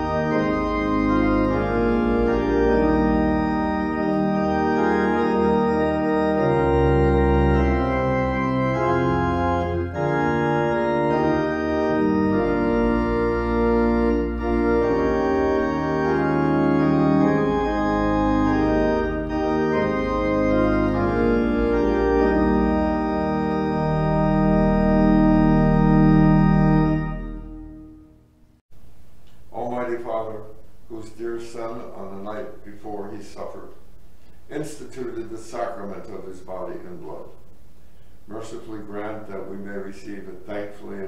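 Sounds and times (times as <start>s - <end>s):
church organ playing chords: 0.0s - 28.5s, 34.5s - 37.5s.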